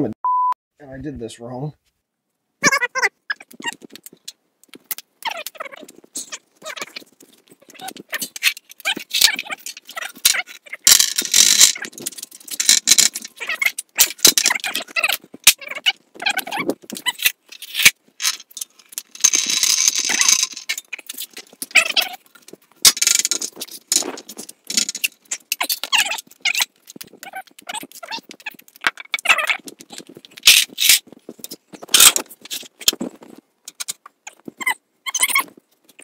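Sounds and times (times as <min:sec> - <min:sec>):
metal tools clinking and rattling: 0:05.4 - 0:34.0.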